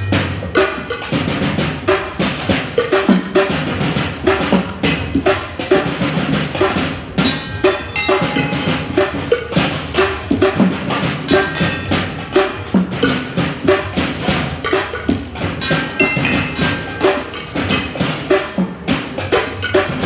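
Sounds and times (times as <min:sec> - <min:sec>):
drumsticks on metal objects: 0:07.2 - 0:09.2, 0:15.6 - 0:17.2.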